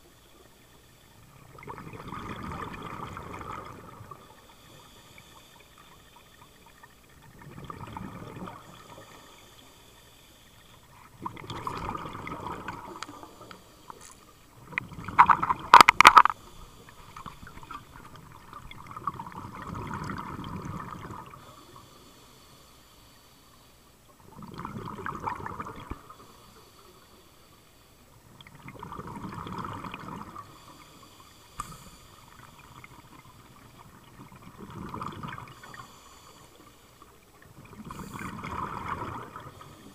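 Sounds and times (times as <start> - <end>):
bubbles gurgling underwater: 1.3 - 4.2, 7.1 - 9.1, 10.9 - 13.2, 14.6 - 16.3, 17.2 - 21.4, 24.2 - 26.1, 28.4 - 30.4, 32.5 - 35.7, 37.4 - 39.9.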